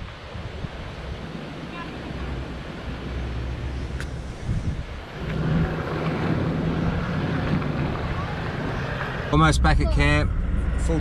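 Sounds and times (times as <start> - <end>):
diesel engine running: 2.2 - 11.0.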